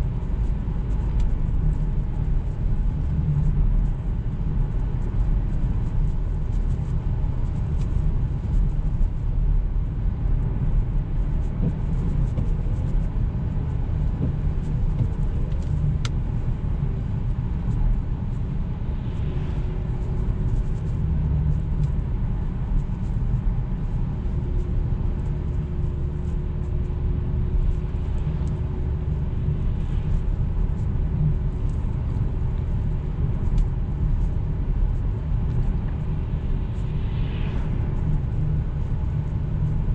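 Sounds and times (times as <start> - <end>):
car cabin road and engine rumble: 0.0 - 39.9.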